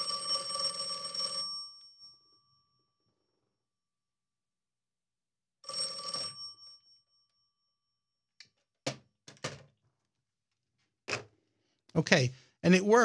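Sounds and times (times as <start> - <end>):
telephone bell ringing: 0.0 - 3.4, 5.6 - 8.1.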